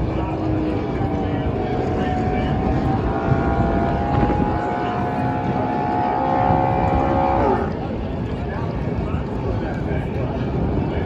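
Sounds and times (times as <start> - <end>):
race car engine revving: 0.0 - 7.8.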